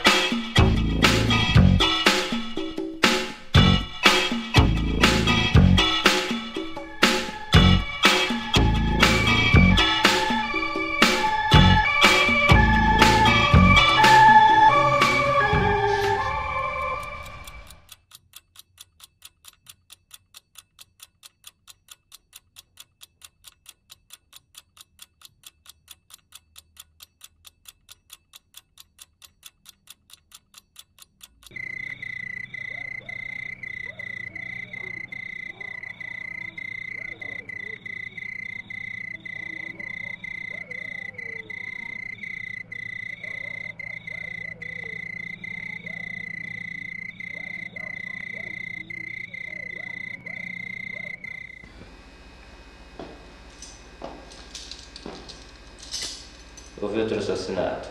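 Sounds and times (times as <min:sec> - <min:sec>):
clock ticking: 0:00.0 - 0:14.1, 0:16.6 - 0:51.7
night chorus of insects or frogs: 0:31.5 - 0:51.7
low hum: 0:48.6 - 0:56.8.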